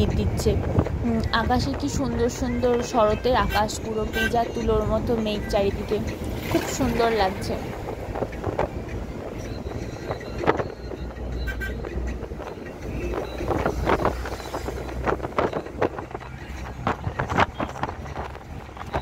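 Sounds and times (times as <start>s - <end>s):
wind through car window: 0.0s - 3.2s, 11.9s - 19.0s
road rumble: 0.0s - 19.0s.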